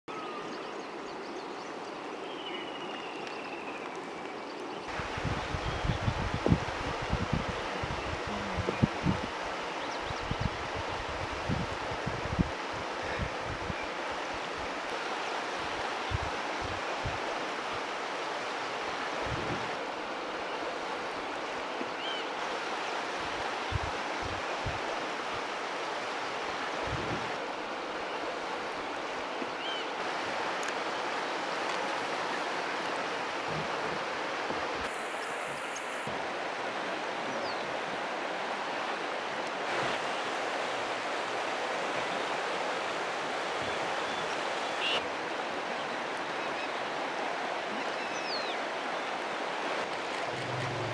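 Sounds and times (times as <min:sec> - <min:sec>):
river water flowing: 0:00.1 - 0:50.9
wind buffeting microphone: 0:04.9 - 0:13.8, 0:19.2 - 0:19.8, 0:23.7 - 0:24.8, 0:26.8 - 0:27.4, 0:50.1 - 0:50.9.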